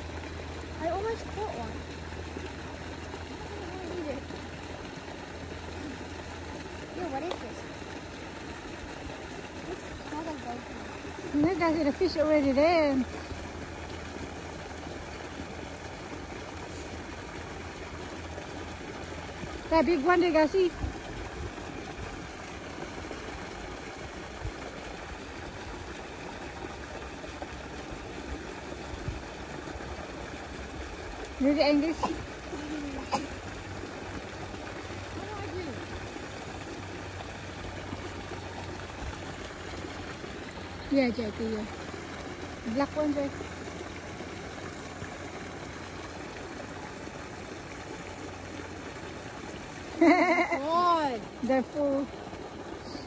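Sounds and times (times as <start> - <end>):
running water hiss: 0.0 - 53.0.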